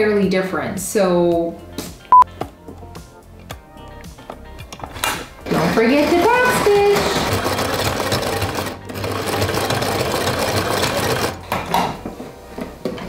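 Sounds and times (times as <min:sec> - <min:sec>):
sewing machine rattling: 0:05.4 - 0:11.4.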